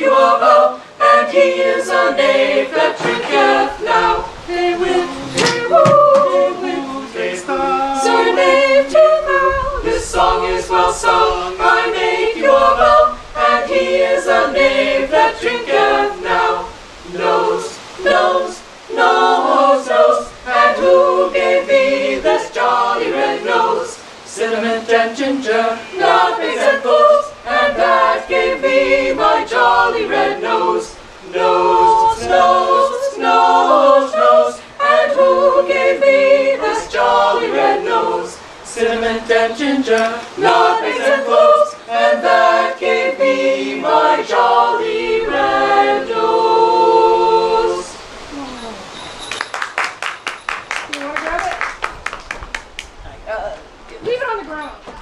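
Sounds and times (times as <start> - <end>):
mixed voices singing a cappella: 0.0 - 48.9.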